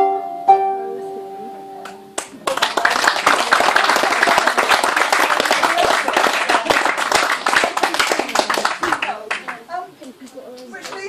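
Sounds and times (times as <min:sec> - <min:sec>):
harp tune: 0:00.0 - 0:02.2
audience clapping: 0:01.8 - 0:11.0.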